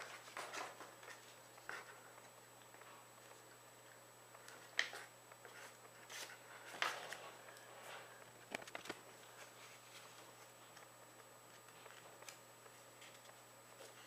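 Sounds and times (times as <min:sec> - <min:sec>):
paper rustling and crinkling: 0:04.4 - 0:14.0.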